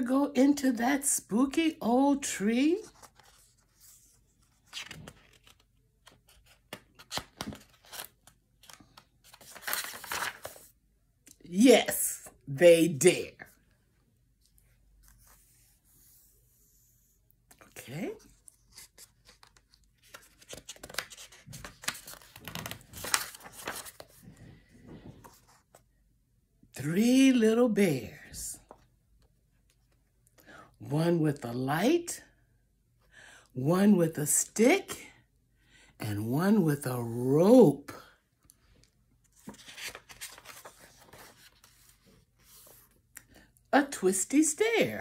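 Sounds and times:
paper rustling: 2.6s - 10.8s, 17.5s - 25.8s, 39.2s - 43.4s.

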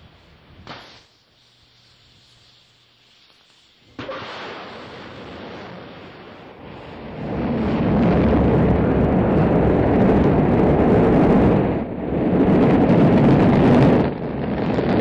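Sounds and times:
rocket engine roar: 3.9s - 15.0s.

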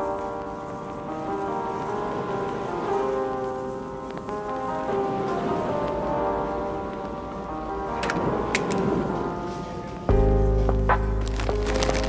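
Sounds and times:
faint hiss: 0.0s - 10.6s
soft background music: 0.0s - 12.0s.

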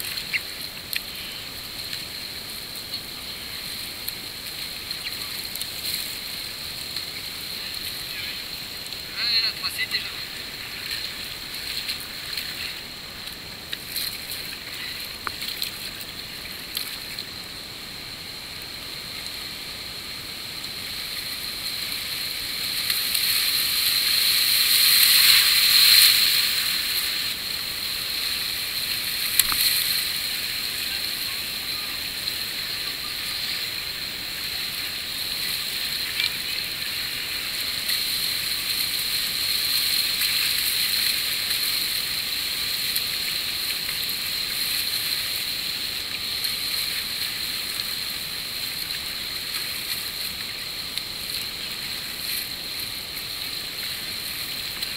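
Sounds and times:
river rapids rushing: 0.0s - 16.7s, 17.3s - 54.9s
sharp water splashes: 21.7s - 47.6s.

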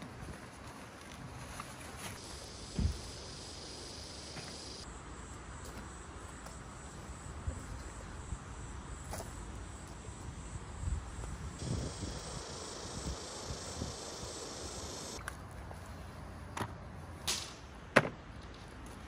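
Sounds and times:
insects trilling: 2.1s - 15.2s
wind rumble on microphone: 10.3s - 14.3s.

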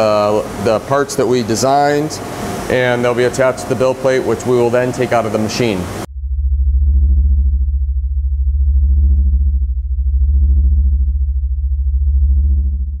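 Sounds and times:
synth pad pulsing in waves: 0.0s - 13.0s
synthesizer drone: 6.0s - 13.0s.

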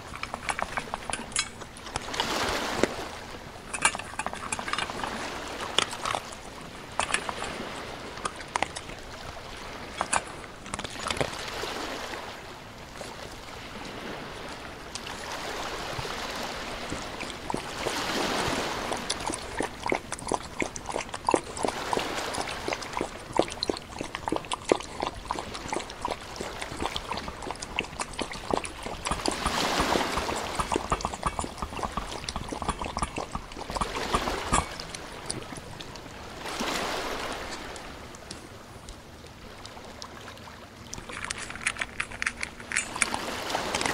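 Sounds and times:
dog splashing in muddy puddle: 16.3s - 35.7s.

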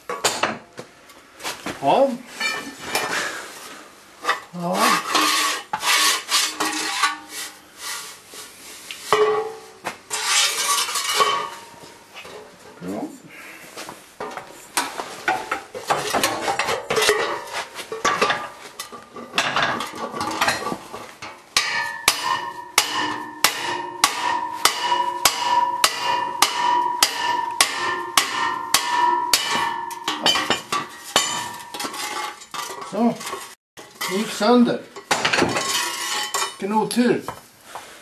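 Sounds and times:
metal tube knocking: 21.6s - 31.8s.

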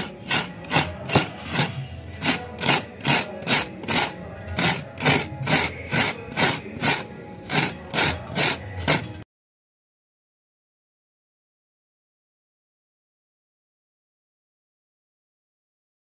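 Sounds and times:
coconut scraping on toothed blade: 0.0s - 9.2s.

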